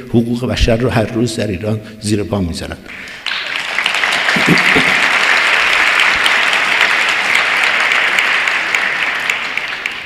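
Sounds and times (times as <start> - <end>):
large audience applauding: 3.0 - 10.0.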